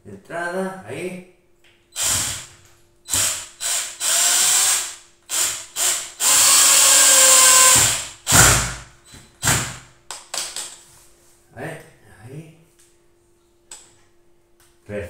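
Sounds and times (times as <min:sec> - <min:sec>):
cordless drill driving screw: 0:02.0 - 0:02.5, 0:03.1 - 0:08.6.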